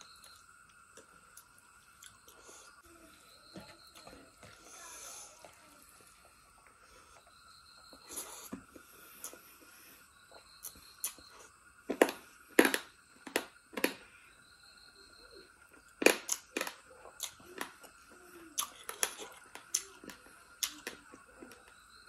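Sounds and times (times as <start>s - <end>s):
wet chewing: 16.2s - 18.0s.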